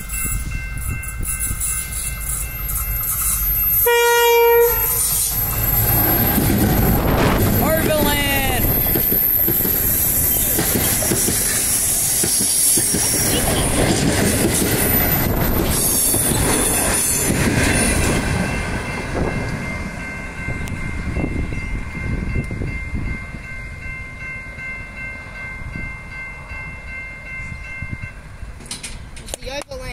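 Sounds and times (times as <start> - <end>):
level crossing bells ringing: 0.0 - 12.0
train wheels clattering on rails: 0.0 - 23.1, 28.4 - 29.9
high wheel squeal: 1.2 - 13.8.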